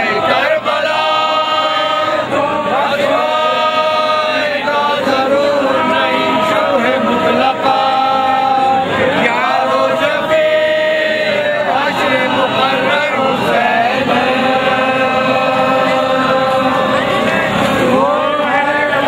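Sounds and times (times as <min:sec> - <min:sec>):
men chanting a lament: 0:00.0 - 0:19.0.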